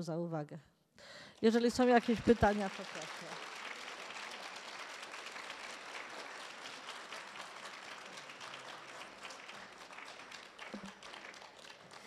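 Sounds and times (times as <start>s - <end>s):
audience applauding: 1.8s - 12.0s.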